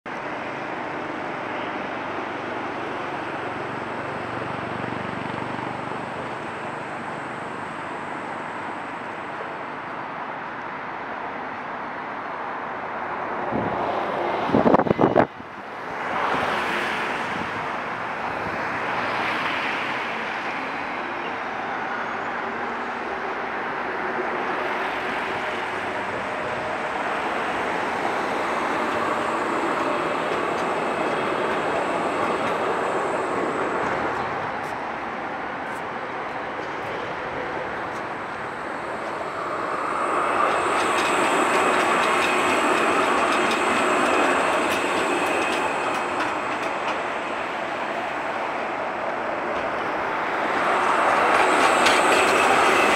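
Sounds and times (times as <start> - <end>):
tram wheels rumbling on rail: 0.1 - 52.9
thin high tram whine: 36.6 - 52.9.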